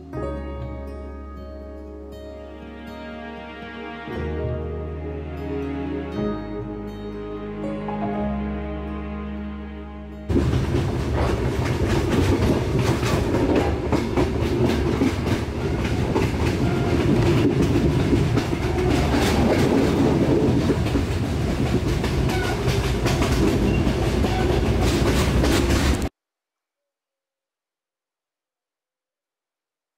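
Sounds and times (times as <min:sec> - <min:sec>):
train rumbling: 0:10.3 - 0:26.1
wheels clattering over rails: 0:10.3 - 0:26.1.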